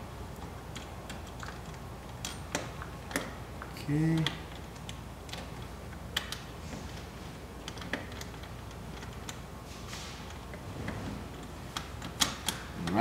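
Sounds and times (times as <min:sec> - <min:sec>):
nut and washer clicking on bolt: 0:11.7 - 0:13.0.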